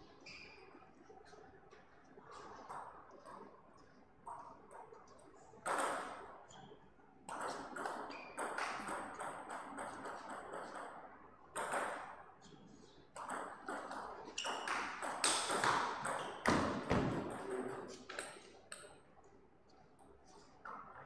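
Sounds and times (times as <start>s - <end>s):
table tennis ball hits: 7.3s - 10.8s, 13.2s - 18.9s
ball bouncing on table: 7.3s - 10.9s, 11.6s - 12.2s, 13.2s - 18.8s.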